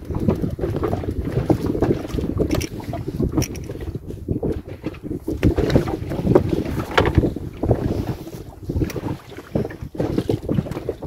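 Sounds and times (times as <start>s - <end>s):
wind buffeting microphone: 0.0s - 11.0s
small clicks and knocks: 2.5s - 2.7s, 3.4s - 3.7s.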